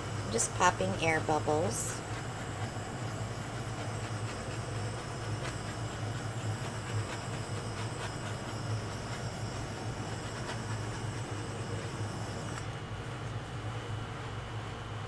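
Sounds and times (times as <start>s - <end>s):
torch flame hissing: 0.0s - 12.7s.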